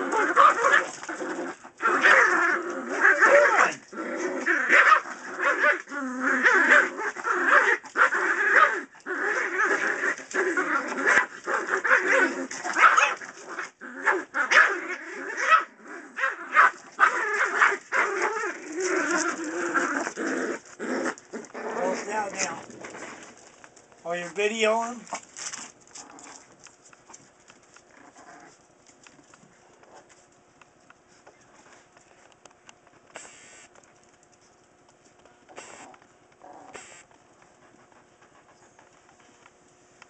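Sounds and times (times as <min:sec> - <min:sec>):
dogs yipping and barking: 0:00.0 - 0:03.8, 0:04.6 - 0:21.3.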